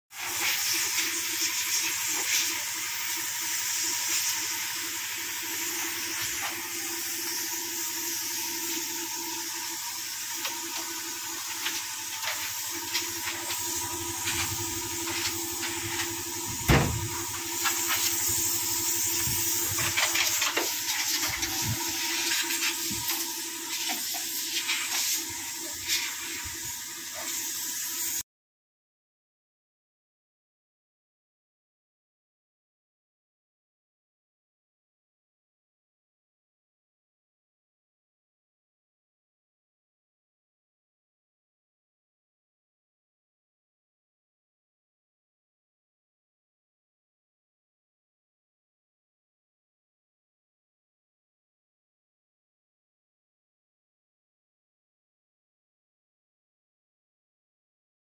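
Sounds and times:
spray gun air hiss: 0.2s - 28.2s
steady hum: 12.9s - 17.5s
sharp knock: 16.7s - 17.1s.

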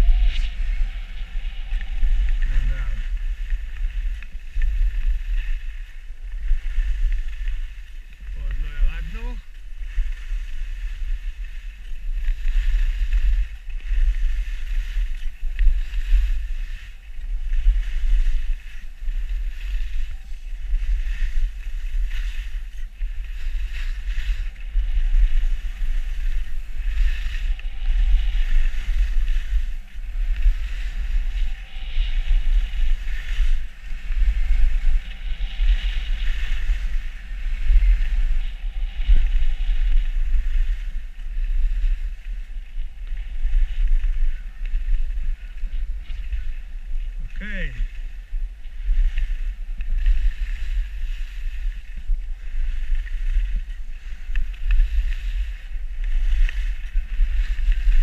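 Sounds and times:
skis sliding over snow: 0.0s - 58.0s
wind buffeting microphone: 0.0s - 58.0s.

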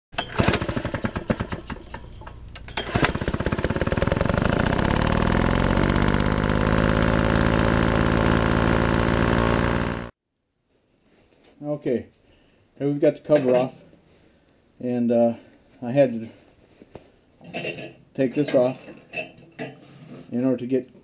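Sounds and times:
small engine starting and running: 0.2s - 10.2s.

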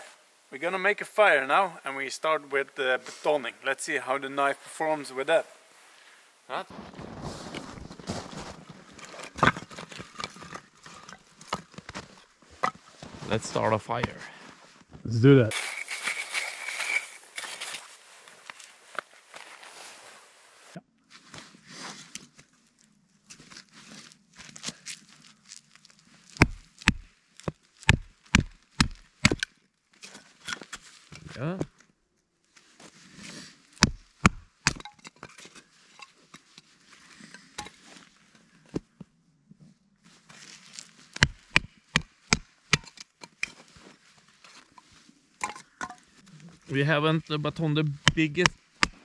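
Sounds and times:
wood crackling and rustling: 6.7s - 13.8s, 14.8s - 21.5s.

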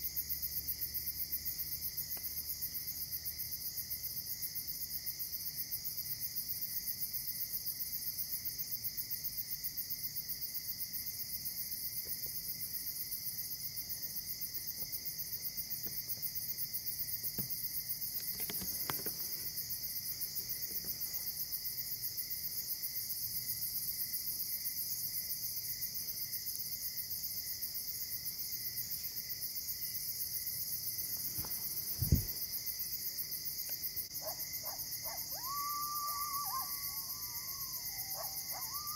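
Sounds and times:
crickets and insects trilling: 0.0s - 38.9s
low thump: 31.9s - 32.4s.

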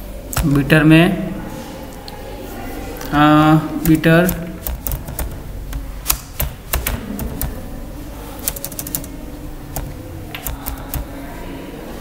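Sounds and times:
keyboard keys clicking: 0.3s - 0.7s, 3.8s - 11.2s.

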